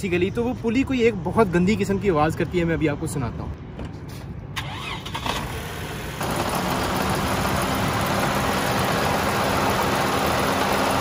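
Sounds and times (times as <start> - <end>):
car engine idling: 5.8 - 11.0.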